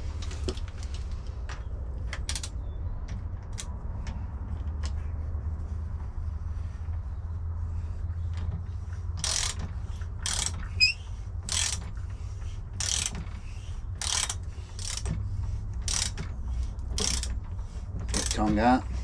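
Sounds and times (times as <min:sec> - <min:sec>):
socket ratchet clicking: 0:02.2 - 0:02.6, 0:09.2 - 0:12.0, 0:12.8 - 0:13.3, 0:14.0 - 0:17.4, 0:18.1 - 0:18.5
short squeak: 0:10.3 - 0:11.2.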